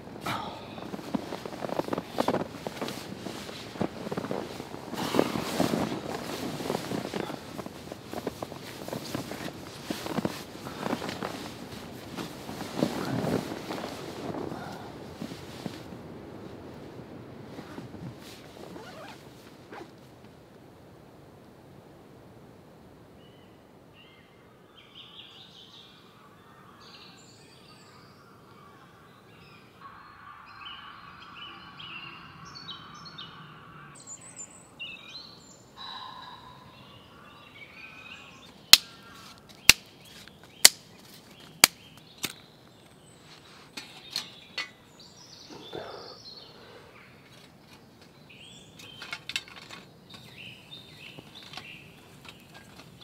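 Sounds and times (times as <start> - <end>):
birds chirping: 0.3 - 15.0, 23.3 - 53.0
sharp cracks: 38.7 - 40.0, 40.6 - 40.9, 41.6 - 42.4.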